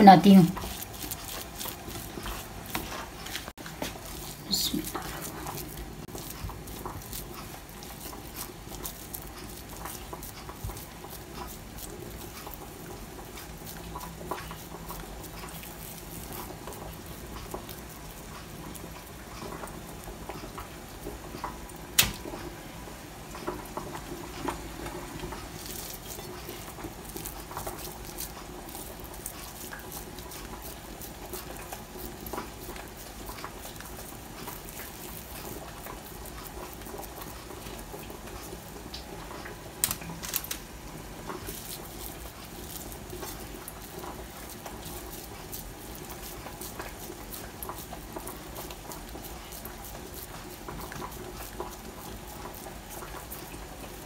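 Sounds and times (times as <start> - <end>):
hands rolling moist mixture: 0.0 - 54.0
sharp click: 22.0 - 22.2.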